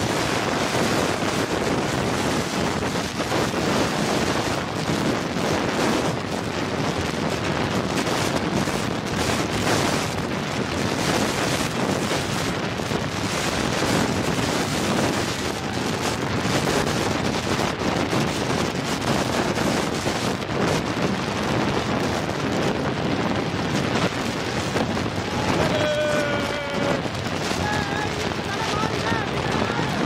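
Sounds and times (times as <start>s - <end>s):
cart running noise: 0.0s - 30.0s
wind rushing on microphone: 0.0s - 30.0s.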